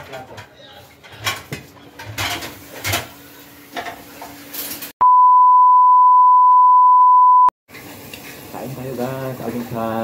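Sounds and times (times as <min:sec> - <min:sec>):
steady test tone beep: 0:05.0 - 0:07.5.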